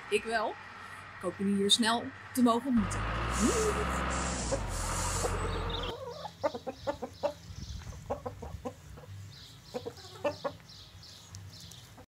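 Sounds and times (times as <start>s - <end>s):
hens clucking: 2.8s - 10.7s.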